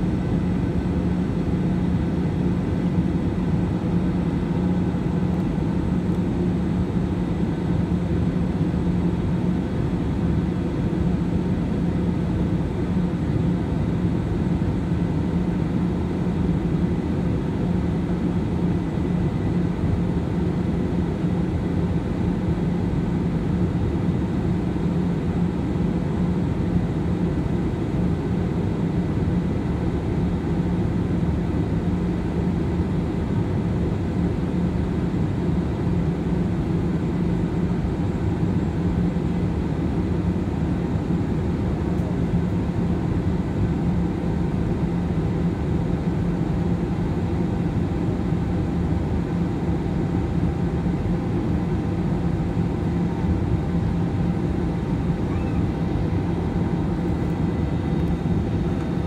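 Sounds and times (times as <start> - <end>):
jet engines and rushing air: 50.8 - 59.0.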